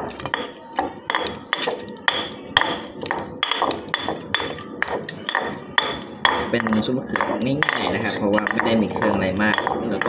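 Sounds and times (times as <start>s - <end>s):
pestle pounding in stone mortar: 0.0s - 10.0s.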